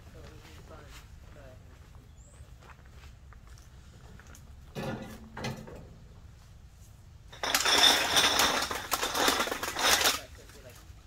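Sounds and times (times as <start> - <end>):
short rattles: 7.3 - 10.4
garbage bag of cans rustling and clinking: 7.3 - 10.7.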